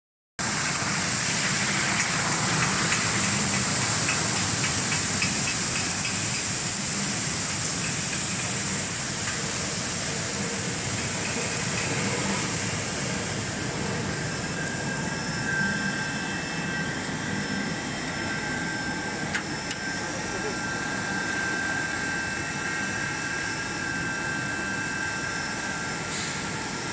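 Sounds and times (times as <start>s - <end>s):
motors and pump running: 0.4s - 26.9s
faint high whine: 6.3s - 26.9s.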